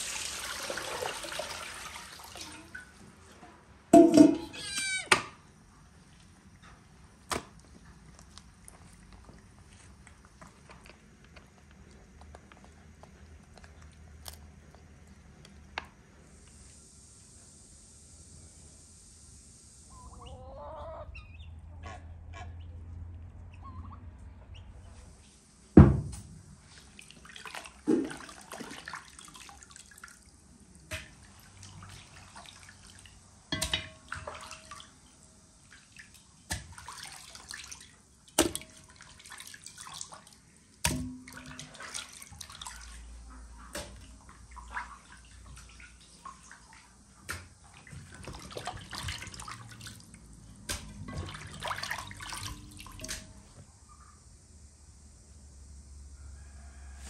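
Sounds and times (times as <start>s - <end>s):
water splashing and dripping: 0.0s - 3.4s, 26.6s - 53.6s
wet thuds in metal pot: 3.9s - 4.5s, 33.5s - 34.3s, 40.9s - 41.7s.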